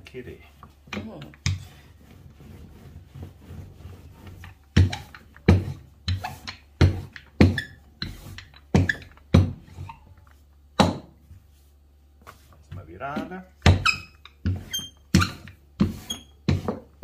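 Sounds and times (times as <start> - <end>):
rolling pin knocking on countertop: 13.2 - 17.0.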